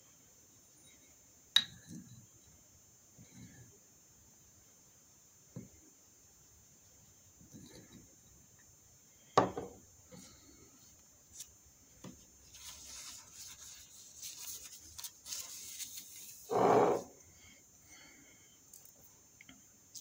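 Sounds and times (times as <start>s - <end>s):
cup knocking on saucer: 9.4s - 9.7s
rubbing and scraping: 12.5s - 17.1s.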